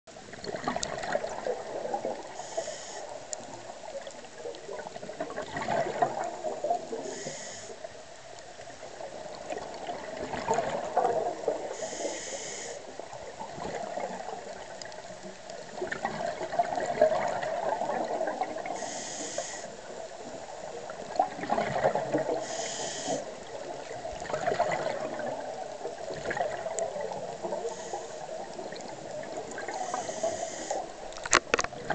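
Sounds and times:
exhaled bubbles rushing: 0.2s - 2.4s, 3.6s - 7.0s, 8.9s - 11.7s, 13.0s - 18.8s, 20.4s - 22.4s, 23.3s - 31.9s
regulator inhale hiss: 2.2s - 3.6s, 7.0s - 8.0s, 11.6s - 13.0s, 18.7s - 19.9s, 22.3s - 23.5s, 27.4s - 28.5s, 29.7s - 31.0s.

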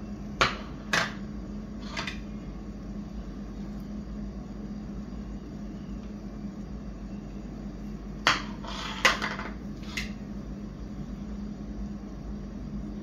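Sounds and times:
low steady hum: 0.0s - 13.0s
plate scraping: 8.3s - 10.1s.

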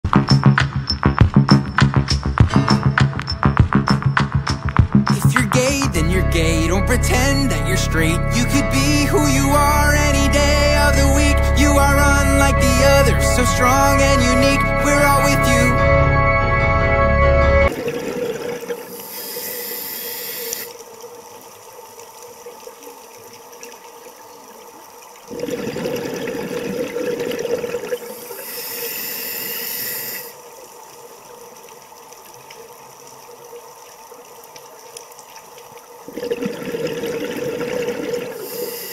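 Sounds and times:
underwater hiss: 18.8s - 20.8s, 28.0s - 30.6s, 38.2s - 38.9s
diver inhaling through regulator: 18.9s - 20.7s, 28.1s - 30.4s, 38.4s - 38.9s
rush of exhaled bubbles: 25.3s - 30.2s, 36.1s - 38.9s.

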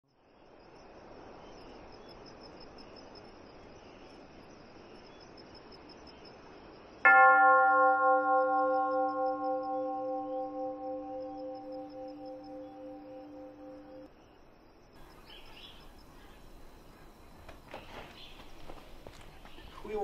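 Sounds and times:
faint steady hiss: 0.1s - 7.1s
bell-like tone ringing: 7.1s - 14.1s
high pulsing tone: 7.1s - 14.1s.

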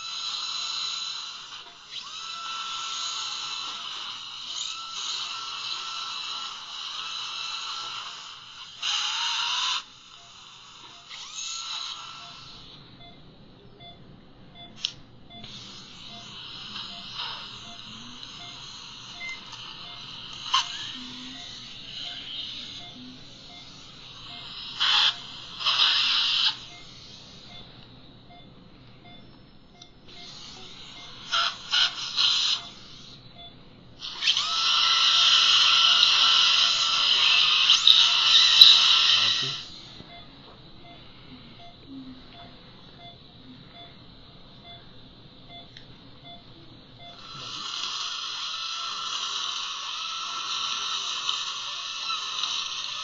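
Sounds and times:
dental drill cutting tooth: 0.0s - 12.8s, 14.8s - 27.7s, 30.1s - 33.2s, 34.0s - 40.1s, 47.0s - 53.0s.

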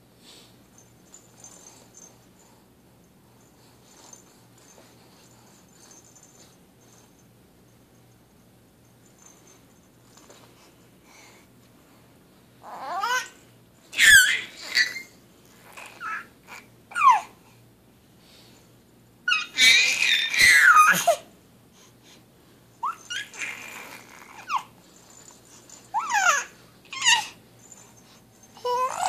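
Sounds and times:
baby babbling and squealing: 12.6s - 13.4s, 14.0s - 17.3s, 19.3s - 21.2s, 22.8s - 24.7s, 25.9s - 27.4s, 28.6s - 29.0s.

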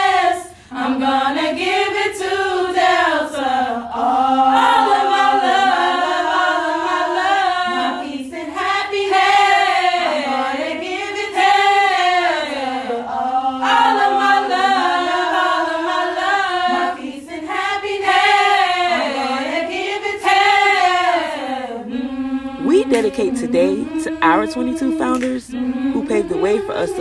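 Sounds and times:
women singing a cappella: 0.0s - 27.0s.

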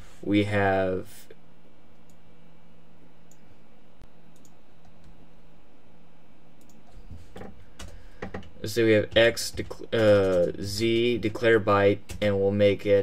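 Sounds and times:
low electrical hum: 0.0s - 13.0s
keyboard keys clicking: 7.8s - 11.2s.

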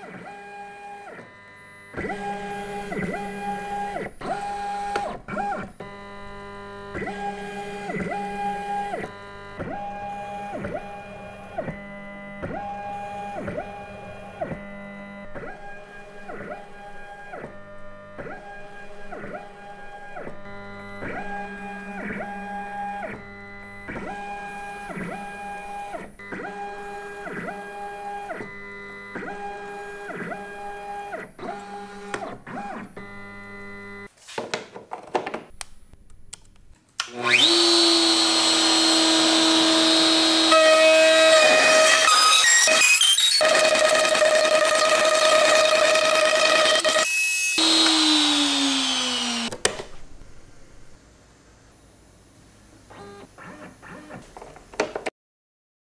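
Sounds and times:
stepper motors whining: 37.0s - 50.9s.

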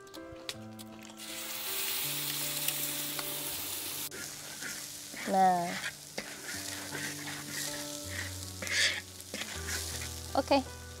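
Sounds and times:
spice paste sizzling in hot oil: 1.1s - 11.0s
spatula stirring in wok: 2.7s - 10.9s.

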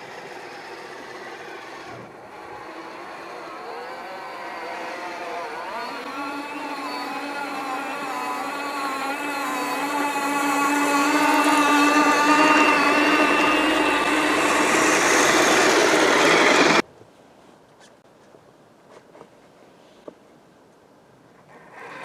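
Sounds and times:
toy snowcat motor whining: 0.0s - 16.8s, 21.5s - 22.0s.

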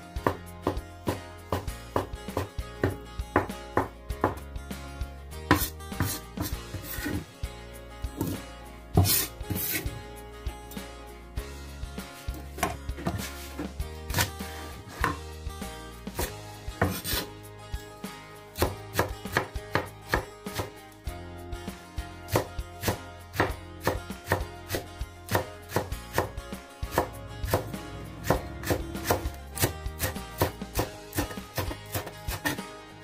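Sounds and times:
knife chopping on wooden board: 0.2s - 4.4s, 5.5s - 7.2s, 8.2s - 8.4s, 9.0s - 9.9s, 14.9s - 15.2s, 16.2s - 17.2s, 18.6s - 20.7s, 22.3s - 26.3s, 26.9s - 32.6s.

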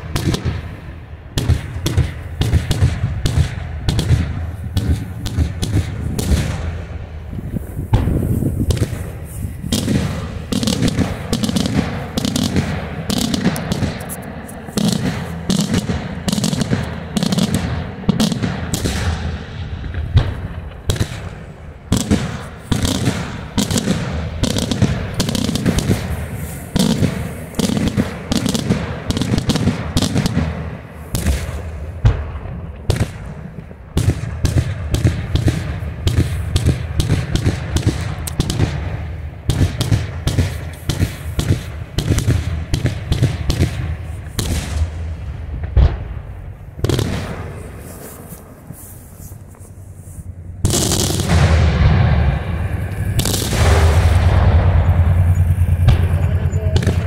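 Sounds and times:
fireworks bursting: 0.0s - 57.0s
low rumble of fireworks: 0.0s - 57.0s.

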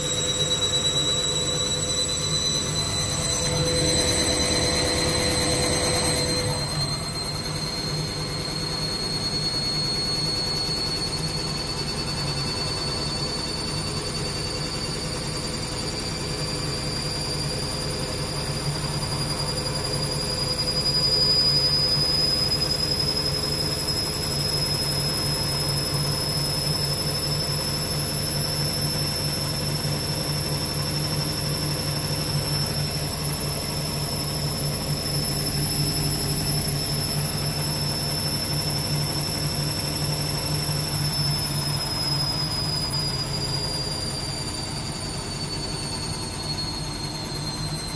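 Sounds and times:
low hum: 0.0s - 10.0s
washing machine motor whine: 0.0s - 47.9s.

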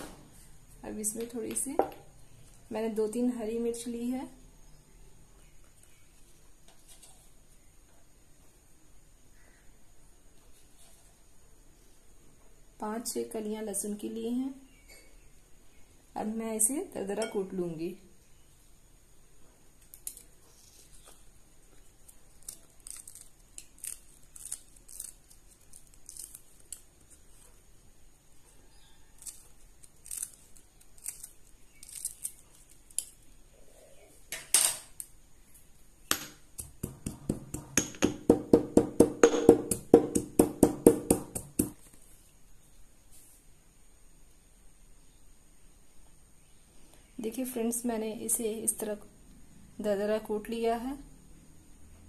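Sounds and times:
pestle pounding in stone mortar: 36.6s - 41.8s.

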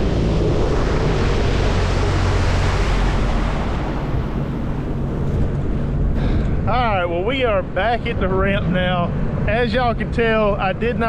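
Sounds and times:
rushing water: 0.0s - 6.0s
jet ski engine drone: 0.0s - 11.0s
wind noise on microphone: 0.0s - 11.0s.

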